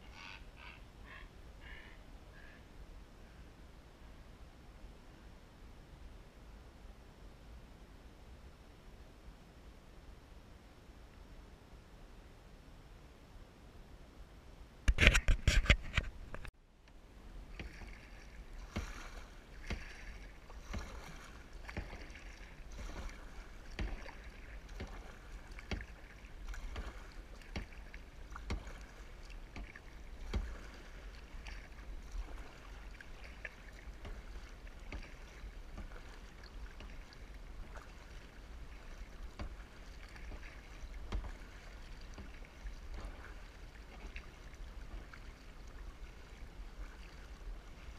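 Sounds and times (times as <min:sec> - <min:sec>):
paddle splashing in water: 0:17.3 - 0:47.9.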